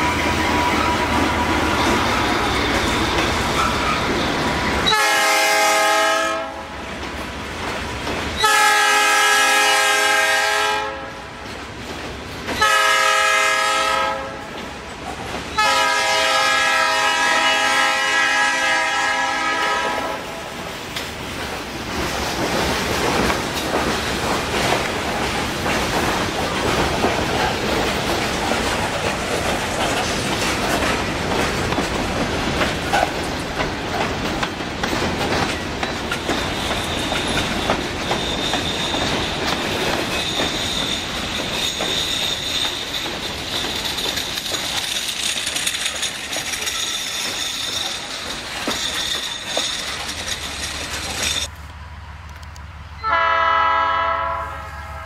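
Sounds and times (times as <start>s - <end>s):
train wheels clattering over rail joints: 0.0s - 6.0s, 6.8s - 9.4s, 11.4s - 13.4s, 20.6s - 51.5s
high-pitched wheel squeal: 36.5s - 44.0s.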